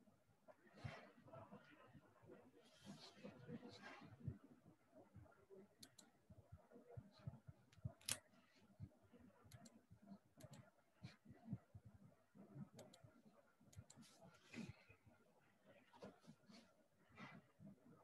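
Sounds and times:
light clicks and ticks: 0:05.8 - 0:06.2, 0:07.2 - 0:08.9, 0:09.5 - 0:11.2, 0:12.7 - 0:14.8.

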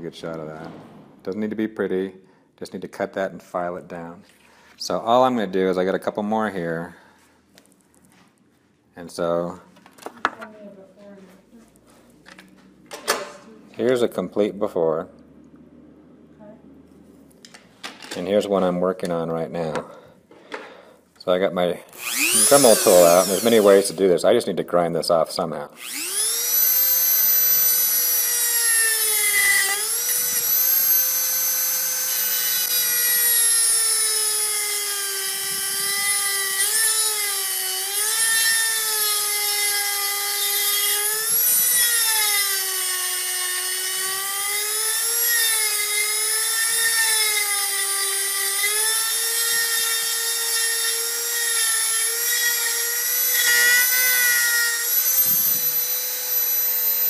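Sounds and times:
rotary tool cutting metal: 0:22.0 - 0:24.0, 0:25.8 - 0:57.0.

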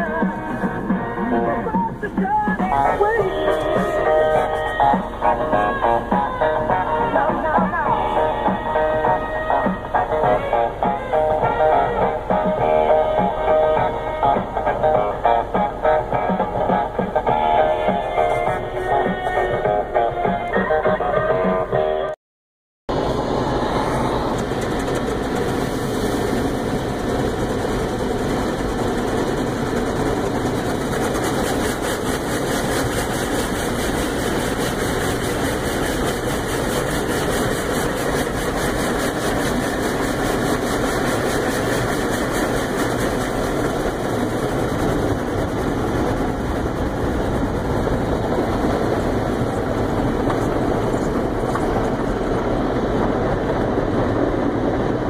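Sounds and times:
car wash rushing noise: 0:00.0 - 0:21.5, 0:22.9 - 0:55.0.

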